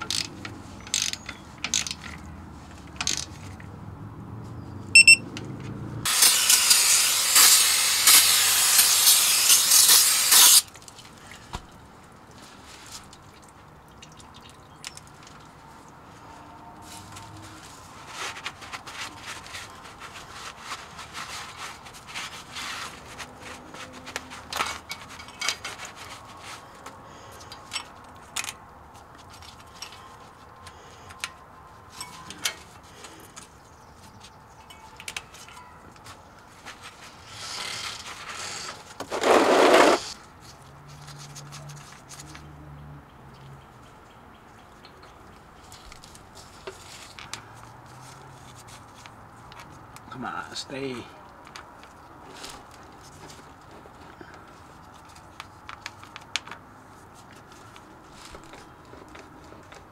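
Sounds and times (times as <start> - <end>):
cloth rubbing on metal cover: 16.9 - 26.7.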